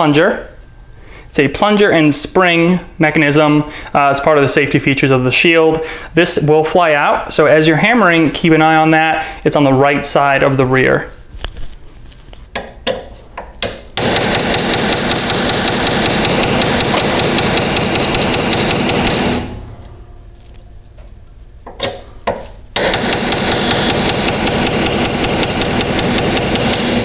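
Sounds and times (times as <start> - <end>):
hammer tapping metal punch: 12.6 - 19.6, 21.7 - 27.0.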